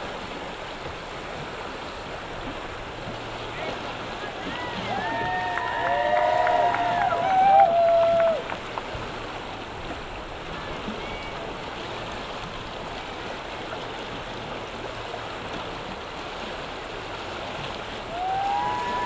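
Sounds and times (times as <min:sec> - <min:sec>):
river rapids rushing: 0:00.0 - 0:19.0.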